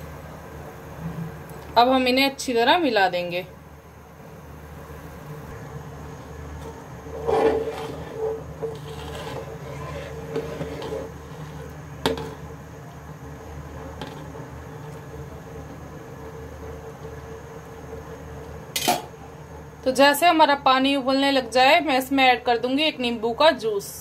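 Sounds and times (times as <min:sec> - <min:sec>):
steady low hum: 0:00.0 - 0:24.0
metal spoon scraping a pot: 0:07.1 - 0:12.4.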